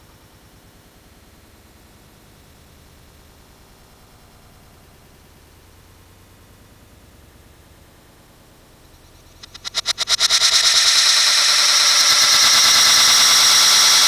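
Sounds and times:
rocket exhaust hissing: 9.4 - 14.0
rocket motor sputtering pops: 9.4 - 14.0.

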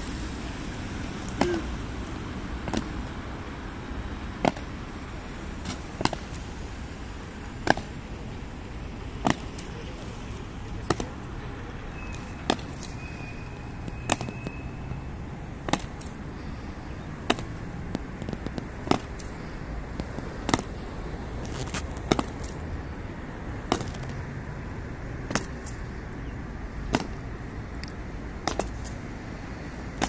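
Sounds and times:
low background noise: 0.0 - 30.0
lighter footfalls: 5.6 - 6.6, 9.1 - 11.4, 12.1 - 14.6, 17.2 - 22.6.

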